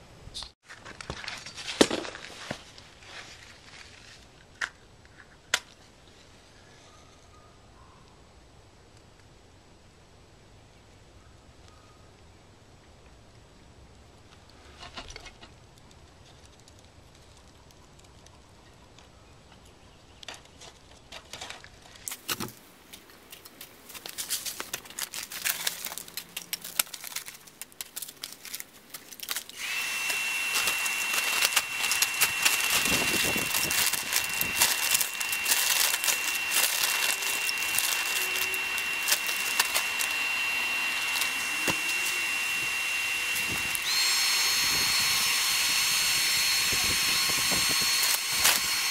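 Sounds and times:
kindling fire crackling: 15.6 - 19.1, 21.6 - 41.8
hair dryer blowing air: 29.6 - 48.9.

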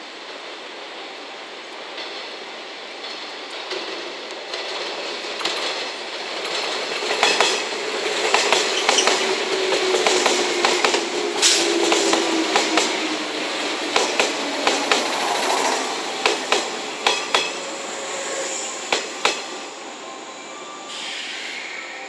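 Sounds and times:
train whine: 0.0 - 22.0
train wheels clattering over joints: 3.0 - 19.8.

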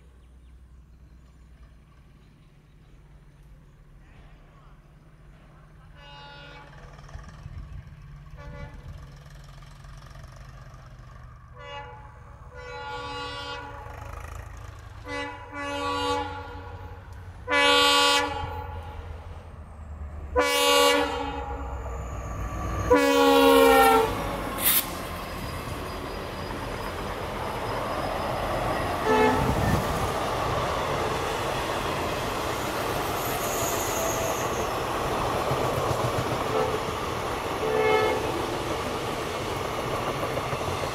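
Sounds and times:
low engine rumble: 0.2 - 33.2
train horn blasts: 5.9 - 6.9, 8.4 - 9.0, 11.5 - 14.4, 15.0 - 19.4, 20.3 - 21.9, 22.6 - 24.8, 28.9 - 29.8, 36.4 - 38.4
train wheels rolling on rails: 6.6 - 11.5, 21.6 - 40.9.

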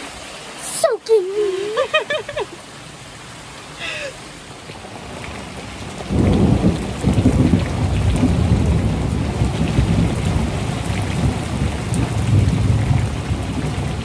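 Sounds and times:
heavy rain falling: 0.0 - 14.0
deep rolling thunder: 5.8 - 14.0.

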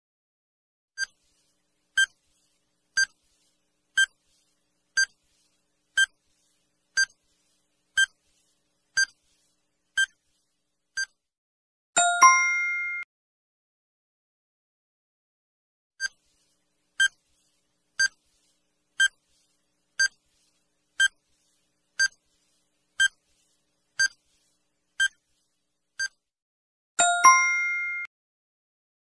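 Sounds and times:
ringing ding of several tones: 12.0 - 13.0, 27.0 - 28.1.

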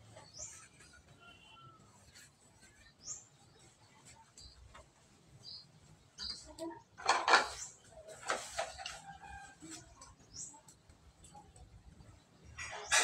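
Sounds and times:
birds chirping faintly: 0.0 - 13.0
dishes knocking and clattering: 6.9 - 9.0.

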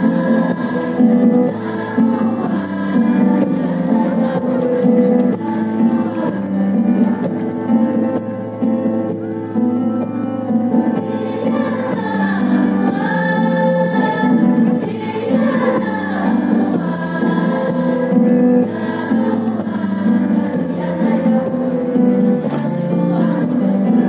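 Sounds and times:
choir singing slow melody: 0.0 - 24.0
musical accompaniment: 0.0 - 24.0.

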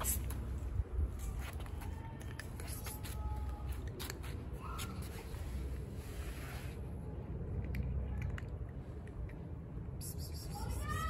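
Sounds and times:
low steady rumble: 0.0 - 10.8
cat crunching dry kibble: 7.4 - 9.6.

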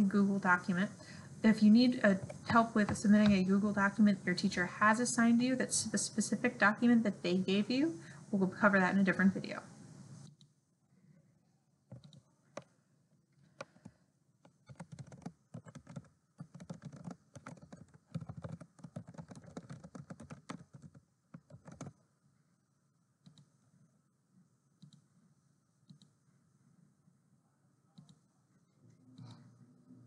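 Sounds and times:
typing on a keyboard: 11.9 - 12.7, 13.6 - 22.0.

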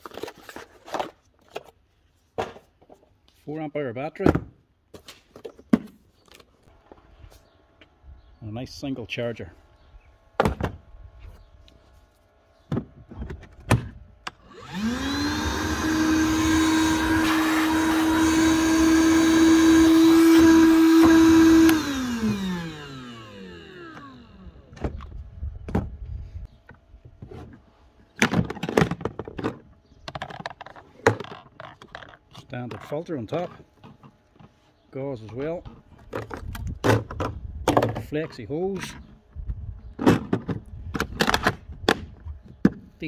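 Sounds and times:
vacuum motor whine: 14.3 - 25.8.

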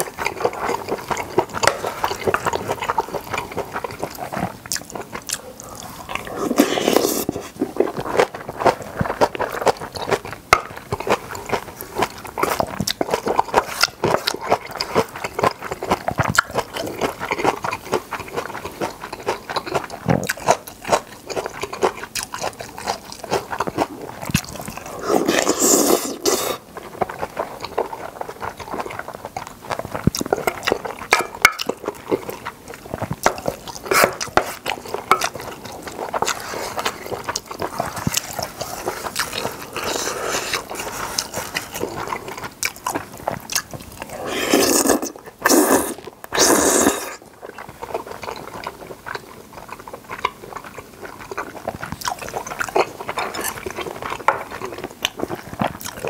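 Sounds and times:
wet chewing and smacking: 0.0 - 56.0
slurping noodles: 5.2 - 10.2, 23.4 - 26.7, 33.4 - 42.4, 44.0 - 48.9.

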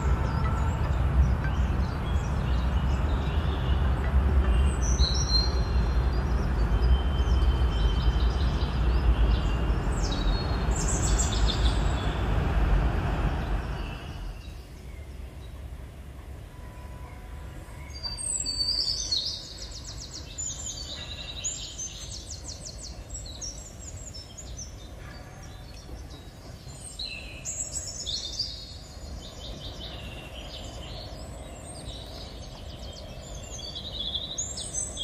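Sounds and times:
birds chirping: 0.0 - 35.0.

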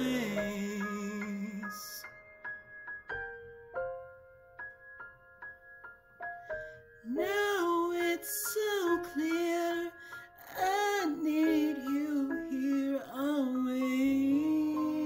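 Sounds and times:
male tenor singing: 0.0 - 2.1, 7.1 - 15.0
solo piano ballad: 0.0 - 15.0.

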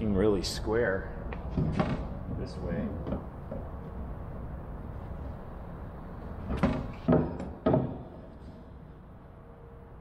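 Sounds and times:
low shop hum: 0.0 - 10.0
plywood panels knocking on workbench: 6.5 - 8.1.

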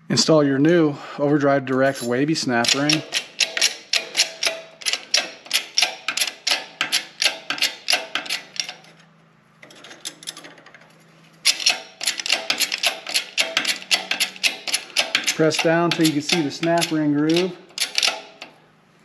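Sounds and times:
press pump clicking: 2.6 - 8.8, 11.5 - 18.6.

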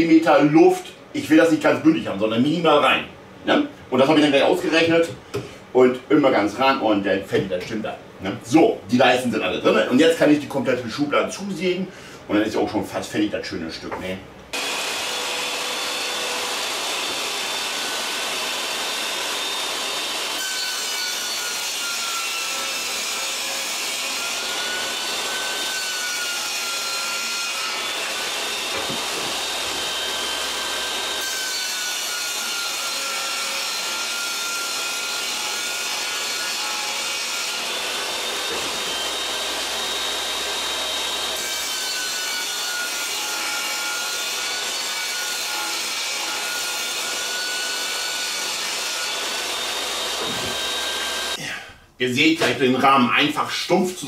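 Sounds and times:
electric saw cutting wood: 14.5 - 51.4.

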